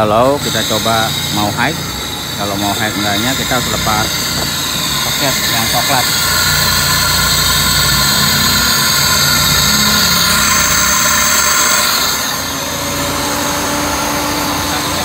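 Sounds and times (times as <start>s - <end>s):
radiator cooling fan whirring: 0.0s - 15.0s.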